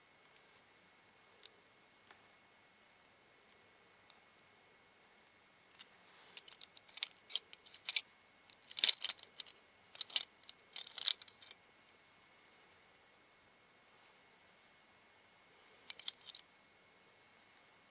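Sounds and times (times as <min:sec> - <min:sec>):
plastic toy parts clicking: 0:06.4 - 0:11.6, 0:15.9 - 0:16.4.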